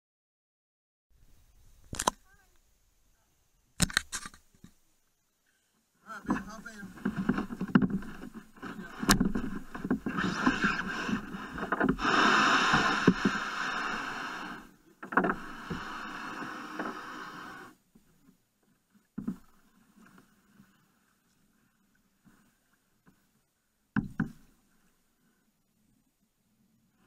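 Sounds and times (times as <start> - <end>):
knocks on kayak hull: 6.2 - 13.4, 24.0 - 24.5
plastic hull scraping on gravel: 6.2 - 17.7.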